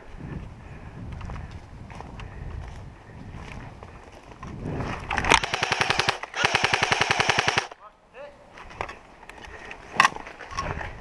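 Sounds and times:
airsoft rifle automatic bursts: 0:05.3 - 0:07.8.

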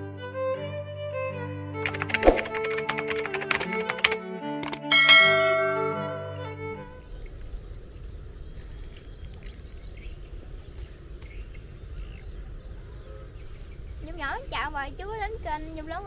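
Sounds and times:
bell-like chime ringing: 0:04.7 - 0:06.6.

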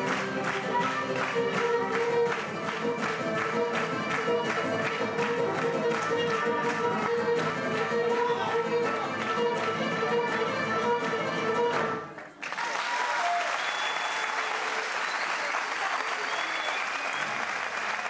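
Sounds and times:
audience applause: 0:00.0 - 0:08.5, 0:12.1 - 0:18.0
folk dance music with lute: 0:00.0 - 0:12.4.

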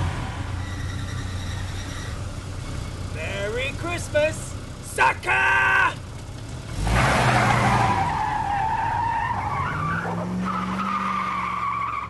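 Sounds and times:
car tyres squealing: 0:00.0 - 0:03.0, 0:06.8 - 0:12.0
car engine running: 0:00.0 - 0:09.6.

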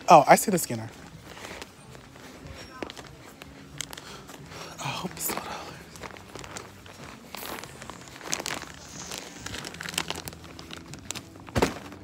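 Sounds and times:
plastic packaging crinkling: 0:05.3 - 0:12.0.

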